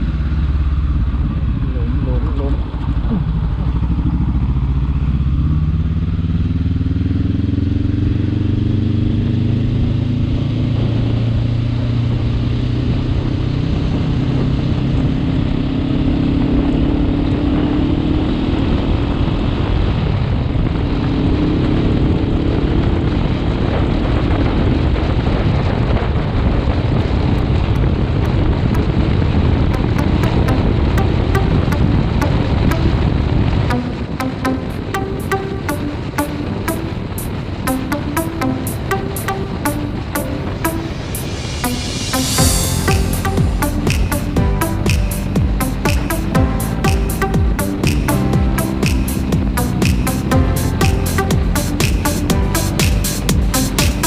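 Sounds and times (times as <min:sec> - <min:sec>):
motorcycle engine accelerating: 0:00.0 - 0:54.0
wind rushing over microphone: 0:18.5 - 0:29.8.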